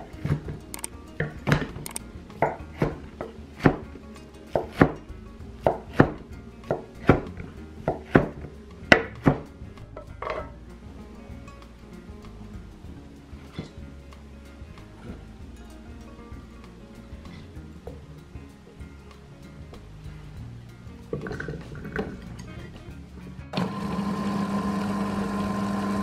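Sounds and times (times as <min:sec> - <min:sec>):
knife chopping on wooden board: 0:02.4 - 0:03.0, 0:07.9 - 0:08.4.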